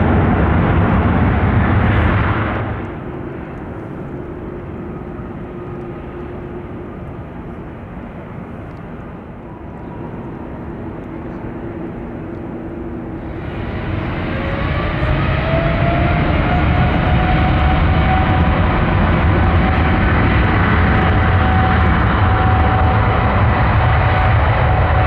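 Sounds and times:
louder jet sound: 0.0 - 5.7
distant jet engines rumbling: 0.0 - 25.0.

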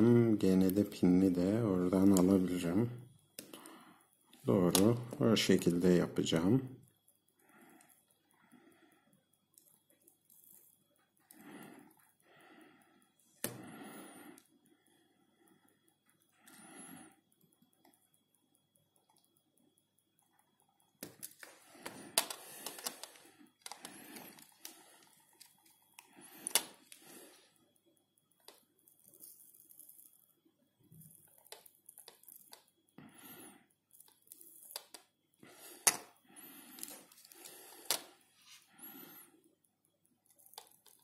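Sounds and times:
soldering handling clicks and taps: 1.9 - 5.7, 9.1 - 12.2, 12.9 - 13.7, 17.2 - 33.0, 33.7 - 41.0.

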